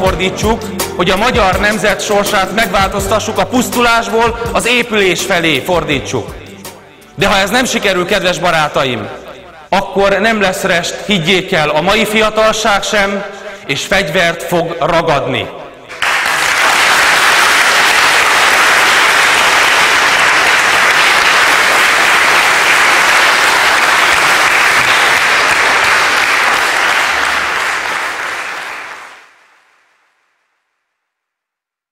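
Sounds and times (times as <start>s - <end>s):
crowd applauding: 15.9s - 29.8s.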